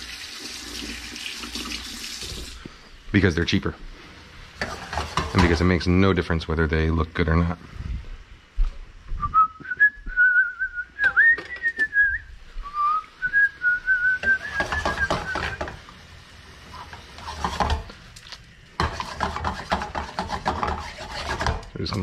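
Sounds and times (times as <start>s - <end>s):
chopsticks scraping metal skillet: 4.6s - 5.6s, 14.5s - 15.8s, 16.7s - 17.9s, 18.8s - 22.0s
person whistling a tune: 9.2s - 15.6s
beef simmering: 12.7s - 22.0s.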